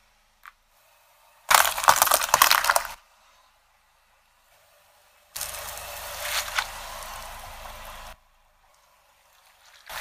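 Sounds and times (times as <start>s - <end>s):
plastic bag popping: 1.5s - 3.0s.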